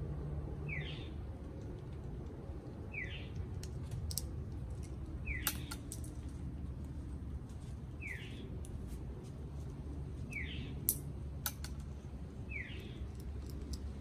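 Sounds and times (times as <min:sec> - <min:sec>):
steady low rumble: 0:00.0 - 0:14.0
bird chirping: 0:00.6 - 0:01.2, 0:02.9 - 0:03.4, 0:05.2 - 0:05.9, 0:08.0 - 0:08.5, 0:10.3 - 0:10.9, 0:12.4 - 0:13.3.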